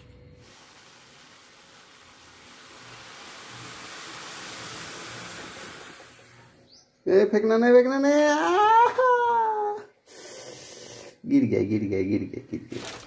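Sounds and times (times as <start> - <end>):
milk hissing on the boil: 0.3 - 6.7.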